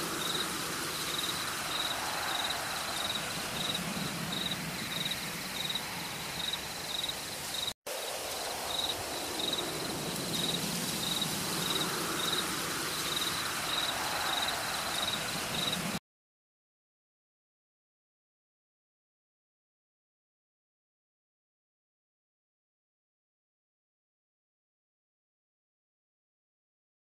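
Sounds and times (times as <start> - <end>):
distant motorcycle drone: 0.0 - 7.4
steady hiss: 0.0 - 16.0.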